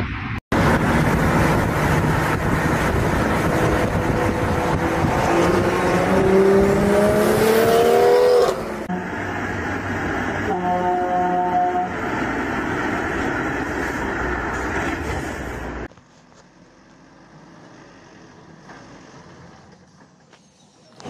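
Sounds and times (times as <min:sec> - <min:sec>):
car engine accelerating: 0:00.5 - 0:10.5.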